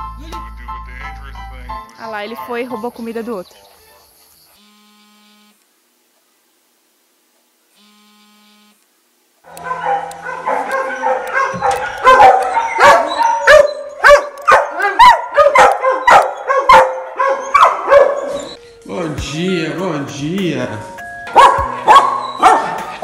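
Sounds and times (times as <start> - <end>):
dogs barking: 9.5 - 18.6, 21.3 - 23.0
dogs whining and yipping: 9.6 - 18.8, 21.3 - 23.0.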